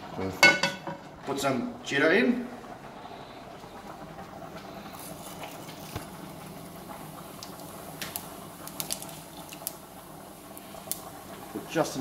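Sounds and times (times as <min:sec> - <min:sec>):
seeds sizzling in hot oil: 0:03.6 - 0:12.0
crackles and pops: 0:03.9 - 0:11.6.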